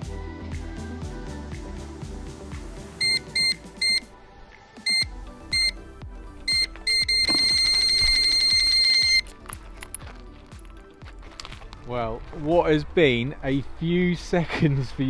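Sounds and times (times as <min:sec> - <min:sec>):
background music: 0:00.0 - 0:15.0
electronic bite alarm bleeps: 0:03.0 - 0:04.0, 0:04.9 - 0:05.8, 0:06.5 - 0:09.2.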